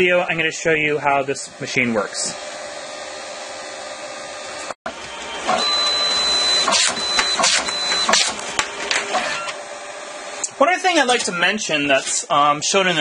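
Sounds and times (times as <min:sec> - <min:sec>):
photo printer whirring: 0:01.5 - 0:10.4
printer mechanism whining: 0:01.5 - 0:11.7.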